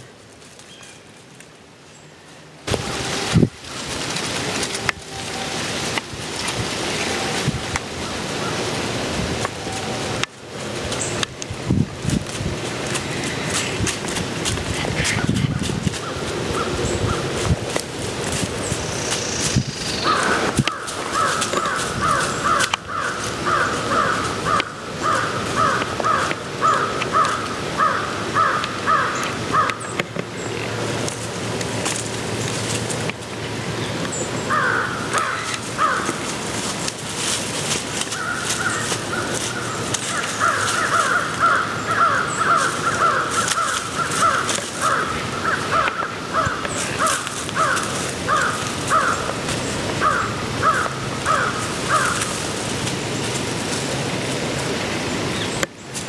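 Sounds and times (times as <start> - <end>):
crows cawing: 14.5 - 17.4, 19.9 - 30.0, 34.5 - 52.7.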